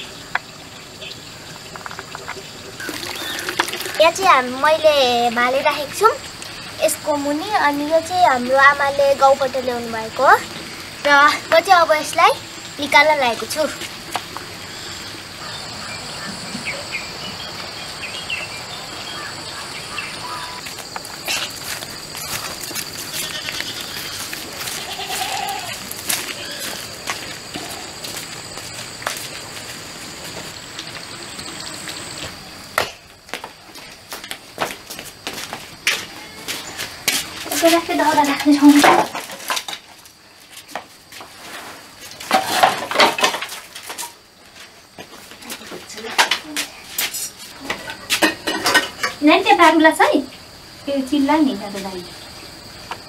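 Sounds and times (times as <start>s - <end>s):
insects droning: 0.0s - 53.0s
rustle: 12.4s - 53.0s.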